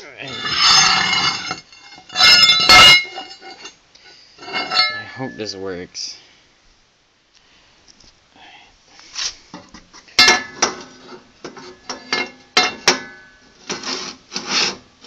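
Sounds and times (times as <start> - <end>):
metal parts scraping: 0.0 - 5.4
metallic clanks and clinks: 0.2 - 3.8, 4.4 - 5.4, 10.2 - 13.4.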